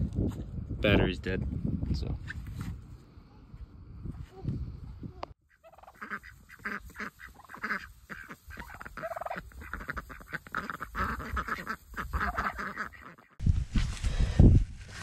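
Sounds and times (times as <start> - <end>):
ducks quacking: 5.4 - 13.4.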